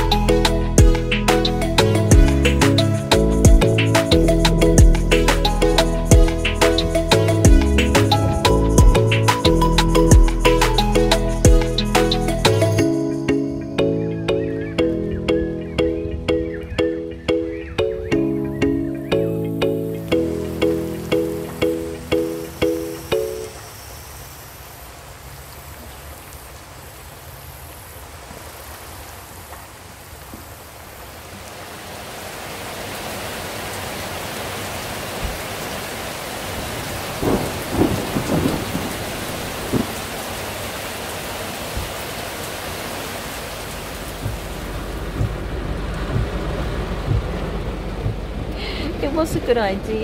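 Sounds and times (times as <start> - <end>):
heavy rain: 0.0 - 13.0, 20.0 - 50.0
rain heard inside a car: 20.3 - 50.0
thunder claps: 36.6 - 40.3, 44.1 - 49.7
low steady rumble: 43.9 - 50.0.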